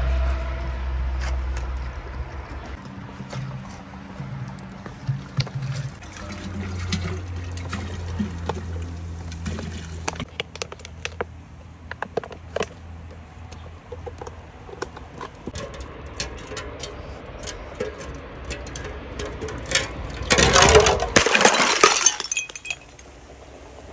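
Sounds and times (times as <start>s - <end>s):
soda glugging and fizzing: 6.0s - 10.2s
glass jar shattering: 20.3s - 23.1s.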